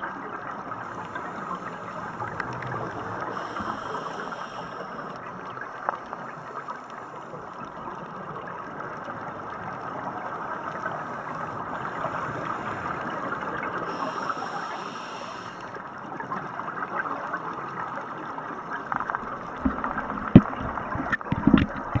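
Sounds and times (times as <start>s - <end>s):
underwater water hiss and gurgling: 0.0s - 22.0s.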